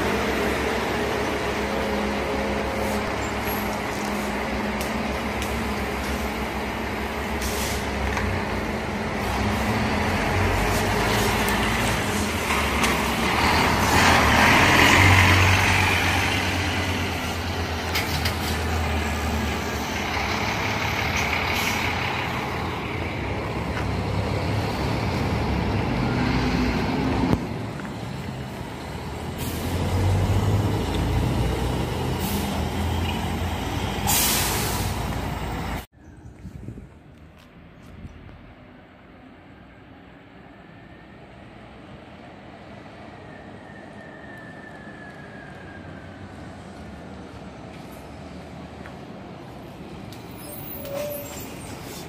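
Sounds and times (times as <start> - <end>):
diesel bus engines rumbling: 0.0 - 52.0
air brake hiss: 7.4 - 7.9, 34.0 - 35.0.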